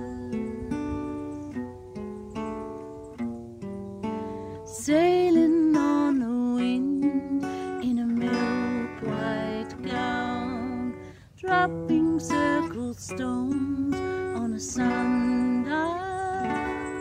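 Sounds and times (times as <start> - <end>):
woman singing wordless notes: 0.0 - 1.0, 4.5 - 17.0
acoustic guitar playing: 0.0 - 17.0.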